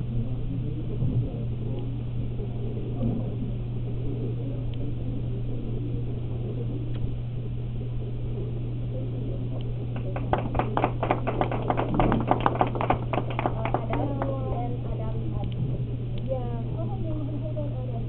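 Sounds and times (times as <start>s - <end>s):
low room hum: 0.0s - 18.0s
people applauding: 9.9s - 14.9s.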